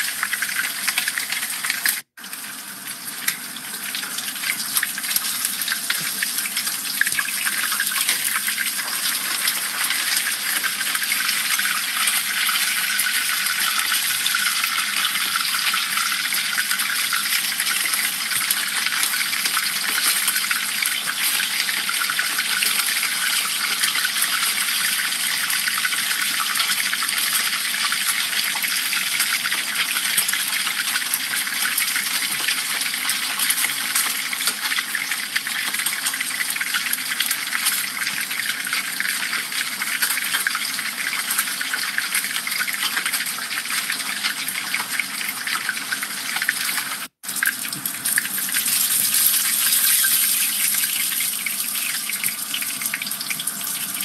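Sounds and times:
fish sizzling in hot oil: 0.0 - 54.0.

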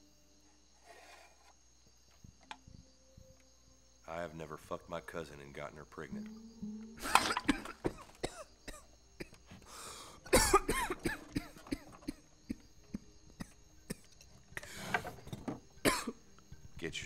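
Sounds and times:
man coughing and clearing throat: 7.0 - 9.4, 10.3 - 14.7, 15.8 - 16.2.

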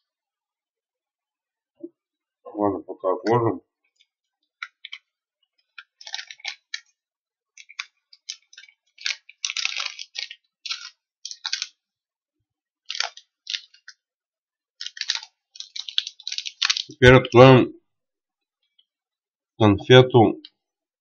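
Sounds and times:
plastic sweet wrapper crinkling: 4.0 - 7.0, 7.6 - 11.8, 12.8 - 14.0, 14.8 - 17.0.

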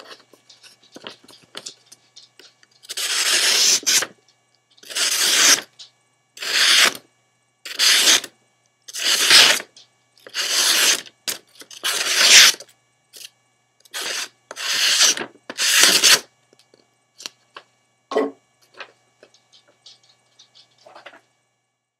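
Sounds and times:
knife slicing paper: 9.0 - 9.6, 14.0 - 16.2.

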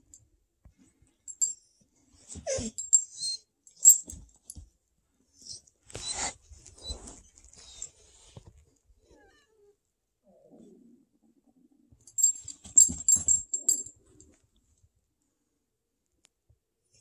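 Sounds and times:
metal tags jingling: 3.8 - 4.2, 12.1 - 13.9
cat growling and crying: 9.0 - 11.0.

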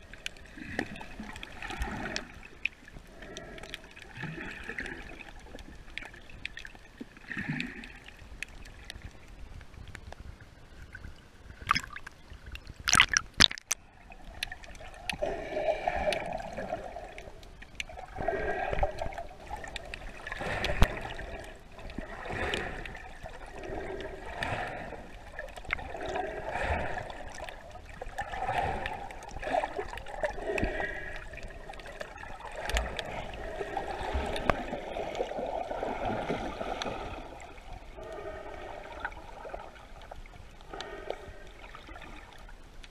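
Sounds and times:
water splashing: 11.5 - 42.5
muffled underwater gurgling: 12.8 - 40.1
water swishing surge: 12.8 - 42.5.

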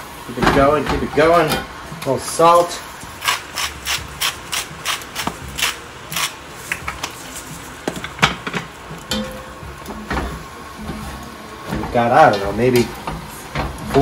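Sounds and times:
salt grinder grinding: 3.2 - 6.4.

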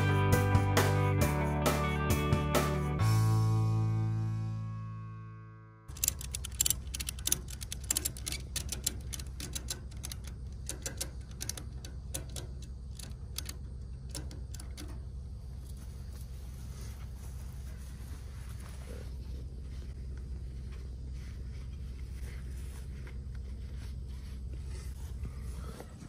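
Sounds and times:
ratchet strap clicking: 5.9 - 15.0
steady low hum: 5.9 - 26.0.

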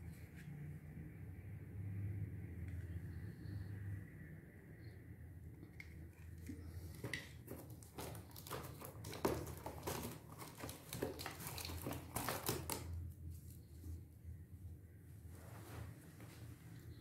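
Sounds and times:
packaging clicks and rustles: 5.8 - 13.0.

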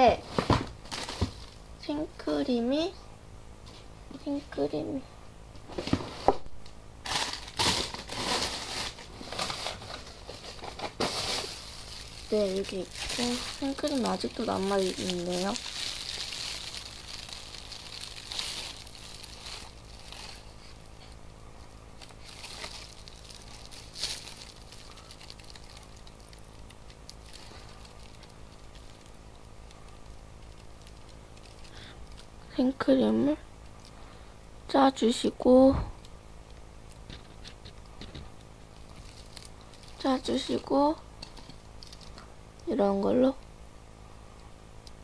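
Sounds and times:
crinkling and rustling: 0.2 - 1.6, 5.6 - 32.4, 36.9 - 42.3.

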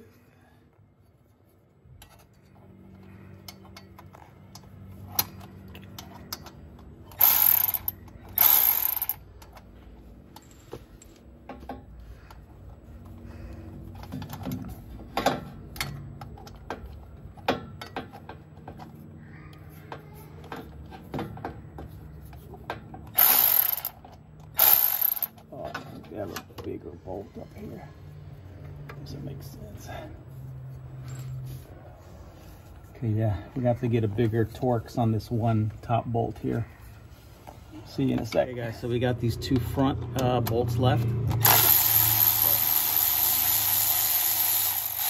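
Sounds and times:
electric ratchet whirring: 7.1 - 9.2, 23.1 - 25.4, 41.3 - 45.0.

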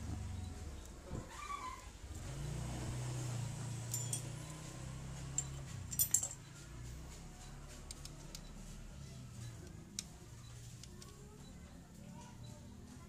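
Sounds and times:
metal tools clinking on engine: 3.8 - 6.6.

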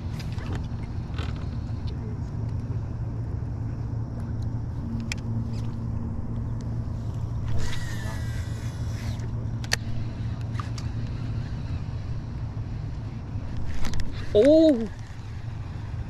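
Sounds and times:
fishing reel spool whirring: 0.0 - 1.8, 4.7 - 16.0
boat motor humming: 0.0 - 16.0.

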